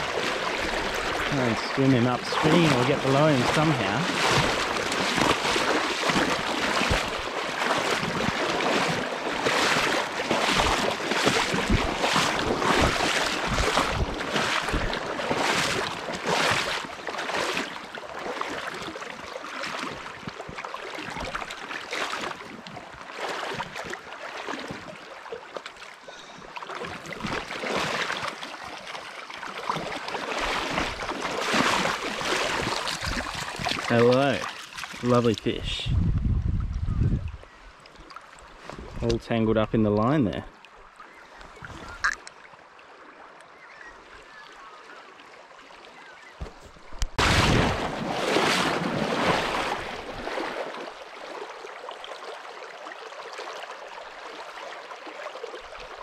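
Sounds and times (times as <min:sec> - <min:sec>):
river rushing: 0:00.0 - 0:18.6
splashing of wading: 0:00.0 - 0:36.0, 0:36.6 - 0:56.0.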